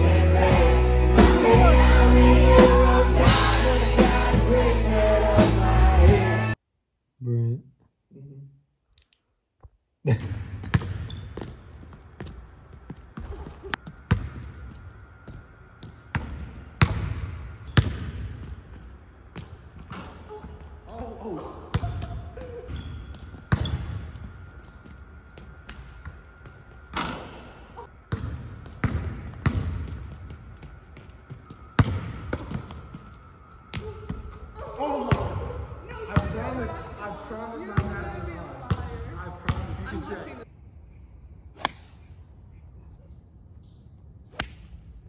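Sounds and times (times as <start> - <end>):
sneaker squeaks: 10.5 - 16.2, 21.8 - 27.9, 29.8 - 35.4
basketball bouncing on hardwood: 28.1 - 30.4.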